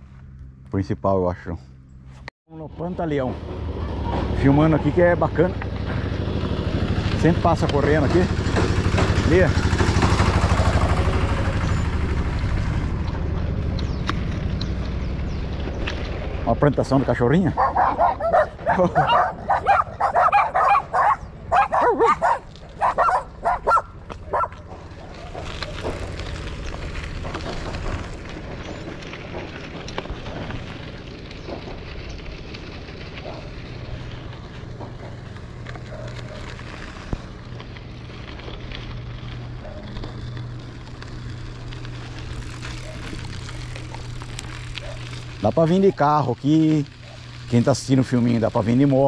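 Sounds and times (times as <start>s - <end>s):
bicycle tyres on dirt road: 0.0s - 49.0s
small dogs barking: 17.5s - 26.0s, 33.2s - 33.6s, 35.8s - 36.6s, 39.6s - 40.2s, 42.6s - 43.2s, 44.7s - 45.2s, 47.0s - 47.3s.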